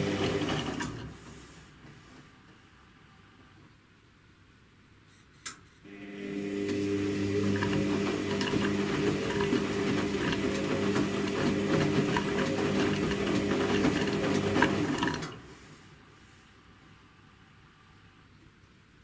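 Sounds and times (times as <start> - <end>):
laundry clicking and sloshing: 0.0 - 1.2, 6.6 - 15.5
washing machine motor humming: 0.0 - 1.3, 5.9 - 15.5.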